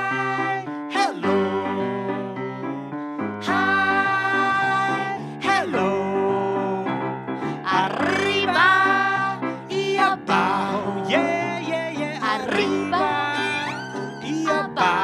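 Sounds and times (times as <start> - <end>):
grand piano accompaniment: 0.0 - 15.0
woman singing: 12.1 - 15.0.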